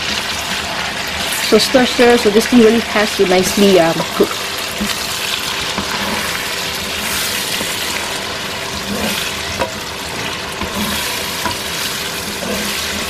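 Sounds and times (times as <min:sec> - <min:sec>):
vegetables sizzling in hot oil: 0:00.0 - 0:13.0
spatula scraping and knocking pan: 0:04.1 - 0:13.0.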